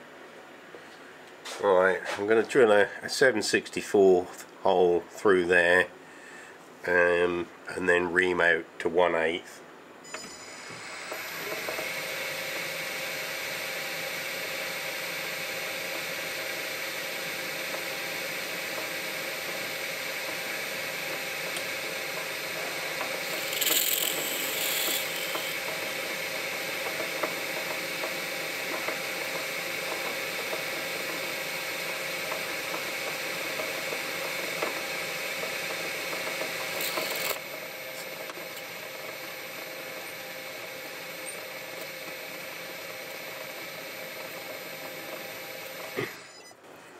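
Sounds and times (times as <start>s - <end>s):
metal lathe whining: 10.4s - 46.5s
drill cutting metal: 10.5s - 46.4s.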